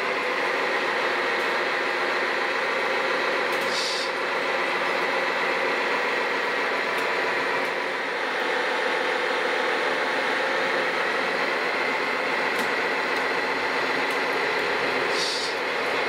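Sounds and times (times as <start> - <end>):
model dozer drive running: 0.0 - 16.0.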